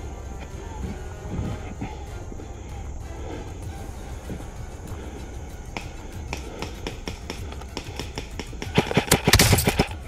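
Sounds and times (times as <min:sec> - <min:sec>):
footsteps on trail: 0:00.0 - 0:10.0
airsoft rifle shots: 0:06.4 - 0:10.0.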